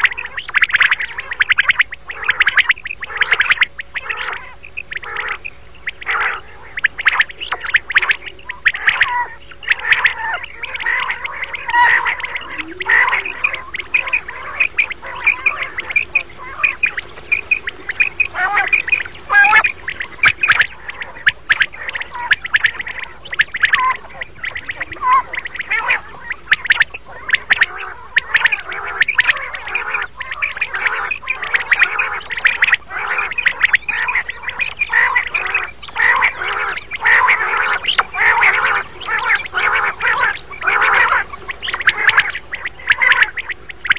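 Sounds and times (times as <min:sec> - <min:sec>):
quails calling: 0:00.0 - 0:43.9.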